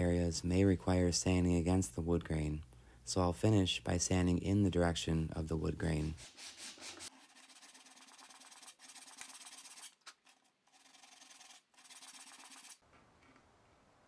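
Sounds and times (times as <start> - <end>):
sandpaper rubbing on wood: 5.8 - 9.9, 10.8 - 12.8.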